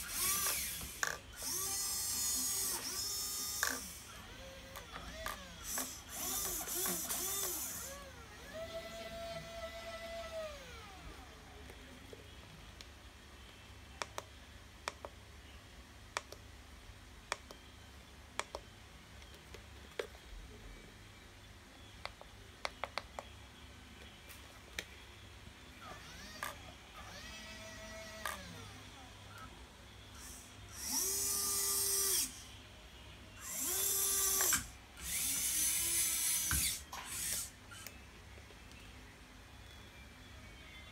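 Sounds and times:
hydraulic pump whining: 0:00.0 - 0:11.0, 0:33.4 - 0:37.9
faint low hum: 0:00.0 - 0:40.9
plastic clicks of transmitter: 0:16.1 - 0:16.4.

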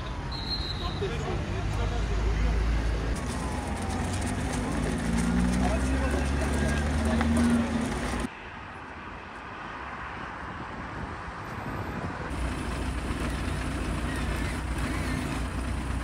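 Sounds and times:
road traffic noise: 0:00.0 - 0:16.0
truck engine idling: 0:03.2 - 0:08.3, 0:12.3 - 0:16.0.

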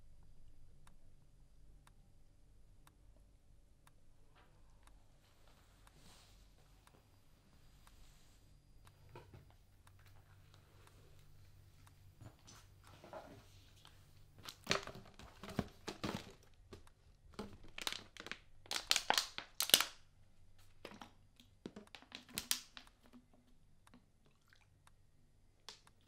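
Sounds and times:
handling rustles and crinkles: 0:12.3 - 0:19.9.

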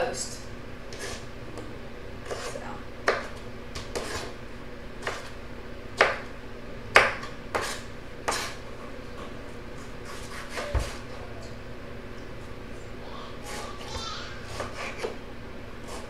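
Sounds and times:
knife chopping on cutting board: 0:02.2 - 0:04.3, 0:05.0 - 0:05.4, 0:06.0 - 0:06.3, 0:06.9 - 0:08.6, 0:14.5 - 0:15.2.

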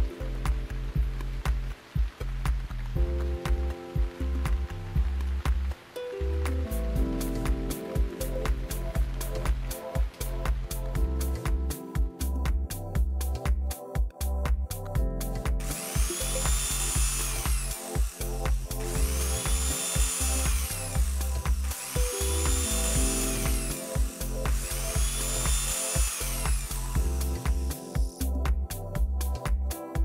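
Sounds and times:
electronic music with steady beat: 0:00.0 - 0:30.0
electric drill running: 0:15.6 - 0:28.0.

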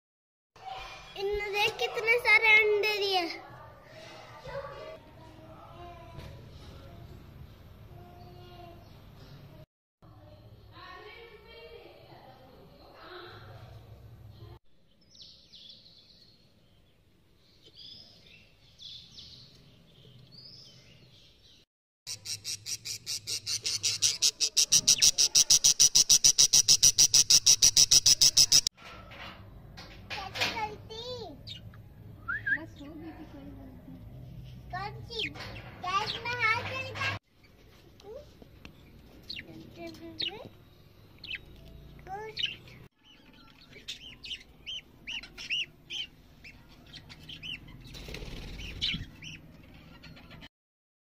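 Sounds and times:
budgerigar chicks cheeping: 0:22.1 - 0:28.7.

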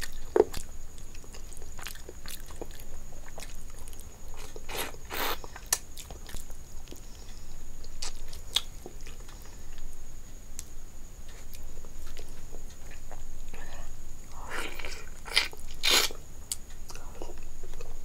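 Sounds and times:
close chewing: 0:00.0 - 0:07.1.

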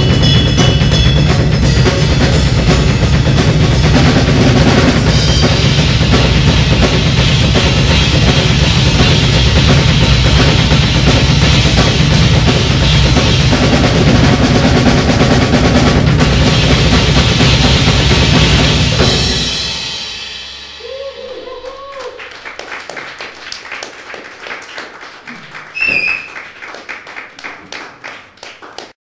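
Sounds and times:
cymbal crash: 0:00.0 - 0:21.8
drum kit playing: 0:00.0 - 0:23.4
person calling out: 0:20.8 - 0:22.2
audience clapping: 0:21.6 - 0:29.0
short high whistle: 0:25.7 - 0:26.4.

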